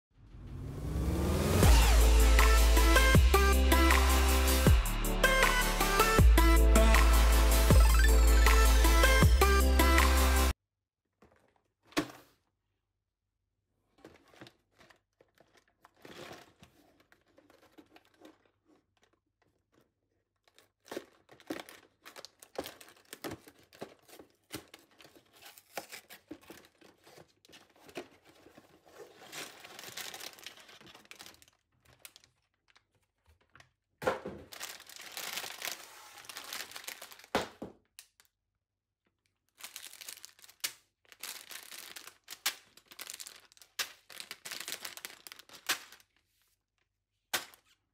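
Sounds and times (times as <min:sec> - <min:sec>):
plastic bags crinkling: 0:13.9 - 0:33.7, 0:34.3 - 0:37.6, 0:39.3 - 0:46.2.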